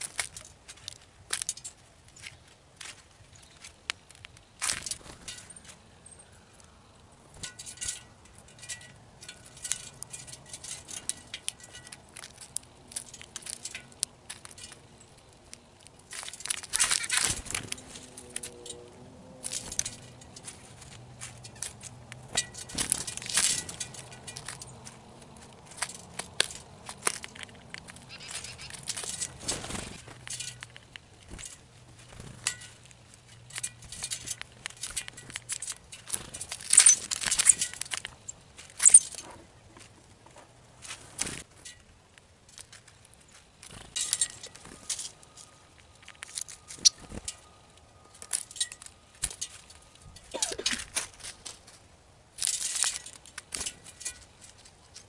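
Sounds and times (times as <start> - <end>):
birds pecking seed in plastic trays: 0.0 - 55.0.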